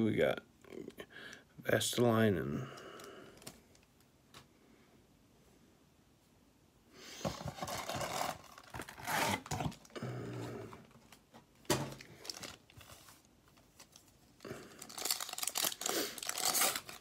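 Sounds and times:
foil wrappers crinkling: 0:11.9 - 0:17.0.

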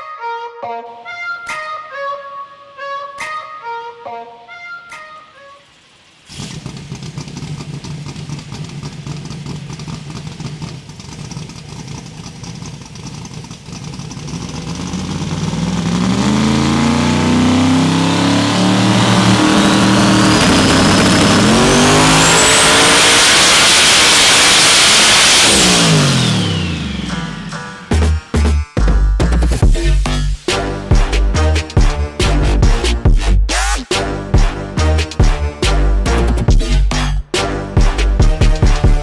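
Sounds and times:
car engine revving: 0:04.9 - 0:28.5, 0:29.2 - 0:39.0
turbo whine: 0:14.8 - 0:28.1.

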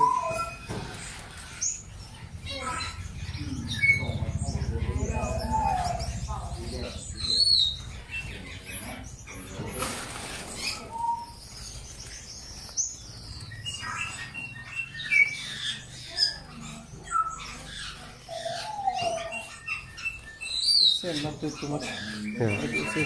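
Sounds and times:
canaries chirping: 0:00.0 - 0:23.0.

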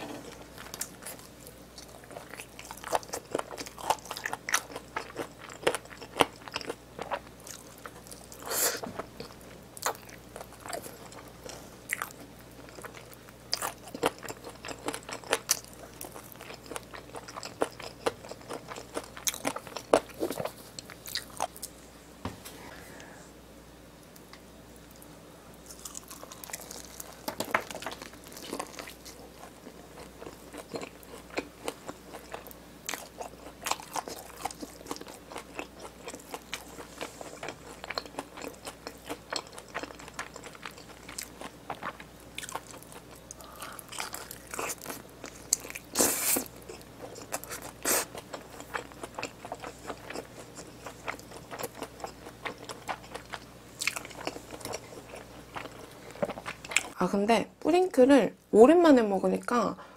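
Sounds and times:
crunchy chewing of fried chicken: 0:00.0 - 0:21.9, 0:24.8 - 0:57.0.

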